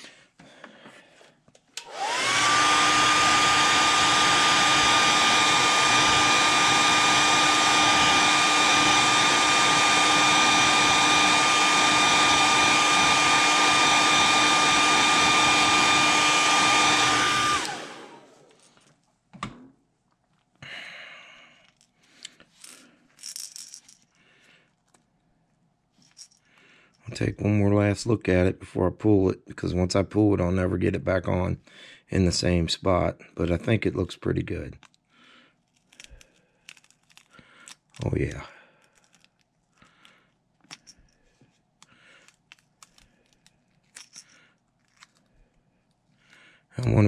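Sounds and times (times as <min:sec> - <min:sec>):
hair dryer blowing: 0:01.8 - 0:18.6.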